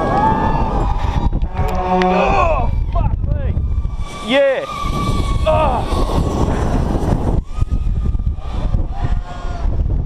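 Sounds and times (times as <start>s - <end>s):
wind rushing over microphone: 0.0s - 10.0s
person yelling: 5.4s - 5.9s.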